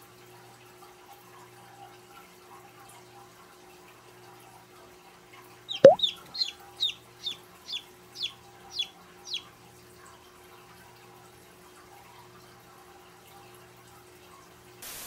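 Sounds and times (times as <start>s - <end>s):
chick peeping: 5.8s - 9.5s.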